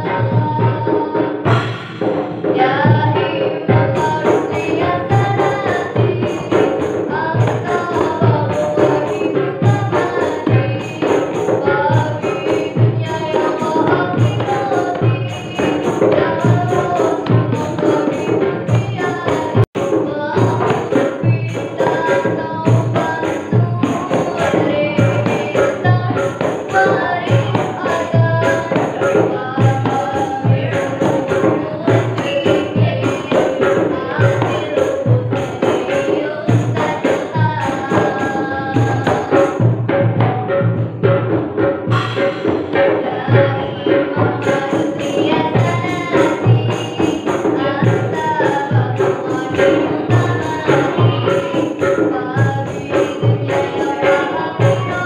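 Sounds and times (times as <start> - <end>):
girl singing devotional song: 0.0 - 55.0
hand drums: 0.0 - 55.0
large drum beat: 0.0 - 55.0
high metallic hits: 1.4 - 3.3, 37.0 - 52.0.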